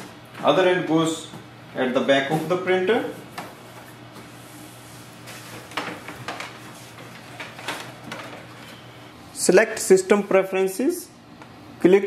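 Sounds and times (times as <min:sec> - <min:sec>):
cable clicks and rustles: 0:05.4 - 0:08.8.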